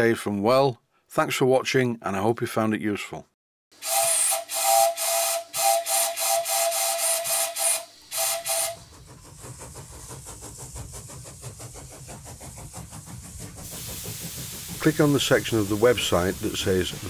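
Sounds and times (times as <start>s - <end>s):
brass whistle tooting: 3.8s - 8.8s.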